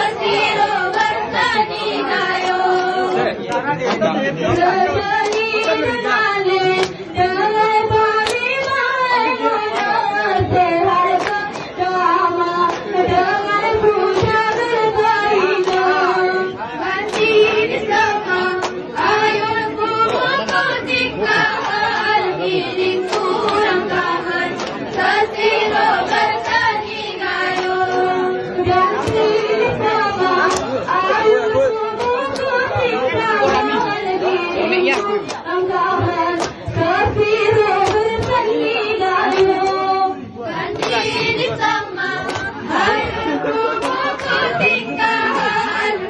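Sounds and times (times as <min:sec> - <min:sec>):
women singing in unison: 0:00.0 - 0:46.0
sharp hand claps: 0:02.2 - 0:06.0, 0:06.7 - 0:07.3, 0:07.9 - 0:09.0, 0:09.6 - 0:16.1, 0:17.0 - 0:19.4, 0:20.0 - 0:20.9, 0:21.6 - 0:22.2, 0:23.0 - 0:25.1, 0:25.7 - 0:30.8, 0:32.0 - 0:34.2, 0:34.8 - 0:39.9, 0:40.7 - 0:41.2, 0:42.2 - 0:45.5.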